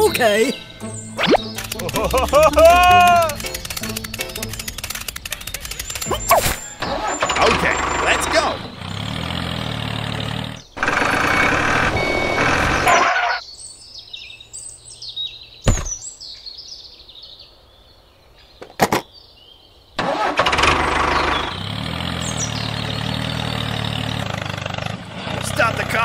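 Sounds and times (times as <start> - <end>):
tractor engine running: 0.0 - 13.4, 20.0 - 26.0
birds chirping: 0.0 - 26.0
hitch pin clicks: 1.2 - 7.9.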